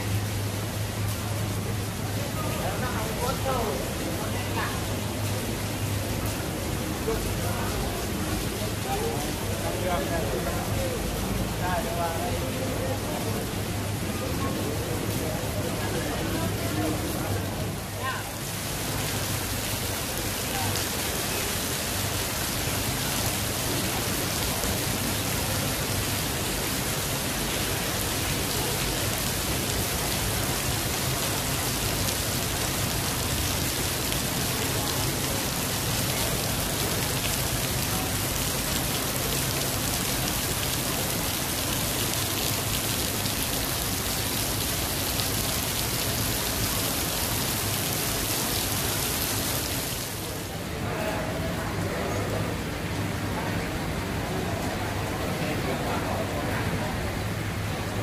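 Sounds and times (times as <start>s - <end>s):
heavy rain: 0.0s - 58.0s.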